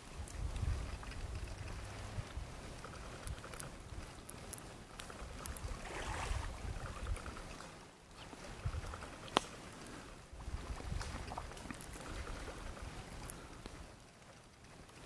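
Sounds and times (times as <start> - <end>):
wind rumbling on microphone: 0.0 - 14.0
small waves washing on shore: 5.1 - 13.6
faint sharp clicks: 7.6 - 9.7.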